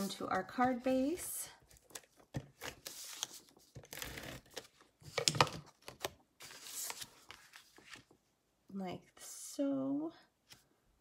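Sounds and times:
paper rustling: 1.7 - 8.2.

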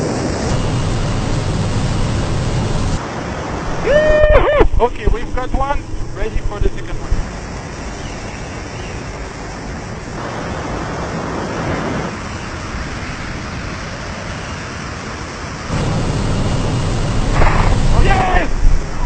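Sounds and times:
rush of airflow: 0.0 - 8.0, 15.6 - 19.0
light aircraft in flight: 0.0 - 19.0.

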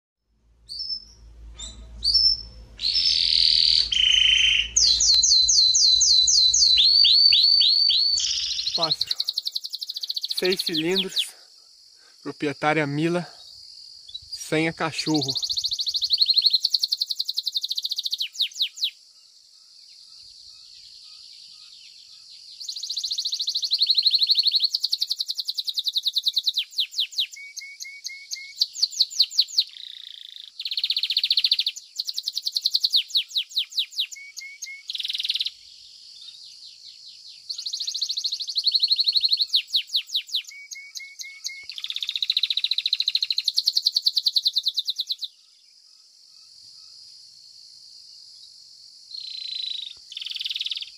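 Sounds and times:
canary singing trills: 0.6 - 11.4, 12.3 - 19.0, 20.0 - 45.6, 49.2 - 50.9.

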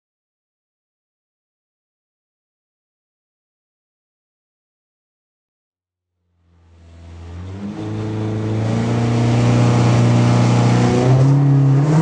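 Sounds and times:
rally car engine revving: 6.4 - 12.0.

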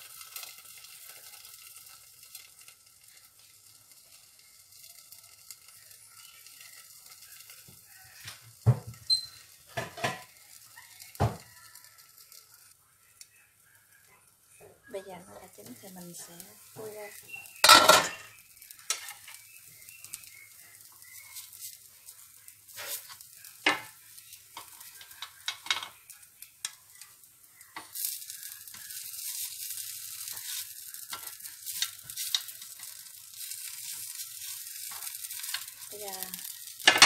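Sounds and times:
batter sizzling in a pan: 0.0 - 37.0
metal spoon scraping a pan: 17.1 - 20.4, 22.7 - 26.2, 27.0 - 37.0.

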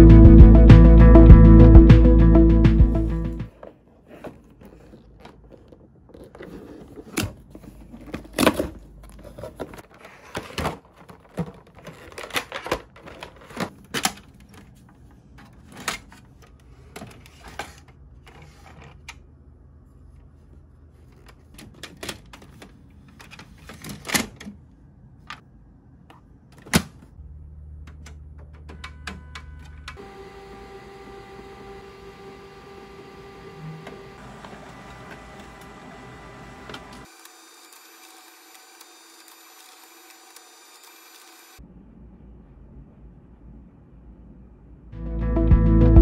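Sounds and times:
printer humming: 28.7 - 41.6.

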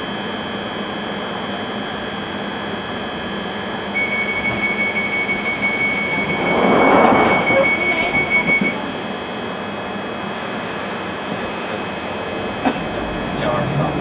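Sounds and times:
train equipment hum and whine: 0.0 - 14.0.

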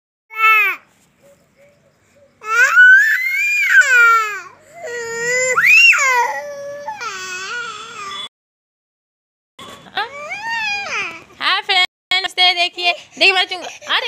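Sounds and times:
toddler crying: 2.4 - 8.2, 10.0 - 11.3.

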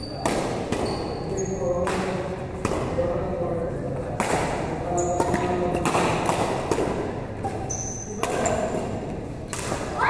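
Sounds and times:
shoes squeaking on court: 0.0 - 1.7, 4.9 - 5.5, 7.4 - 9.0
rackets hitting shuttlecock: 0.1 - 1.0, 1.7 - 3.0, 4.1 - 10.0.

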